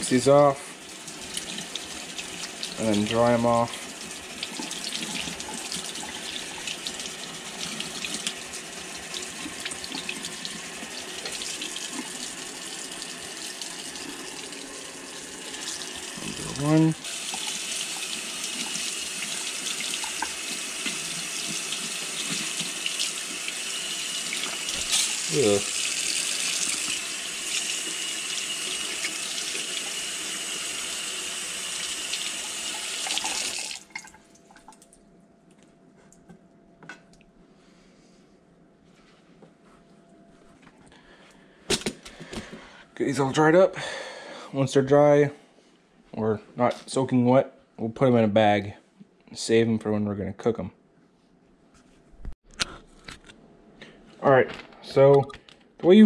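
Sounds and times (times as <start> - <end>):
running water splashing on fish: 3.8 - 34.1.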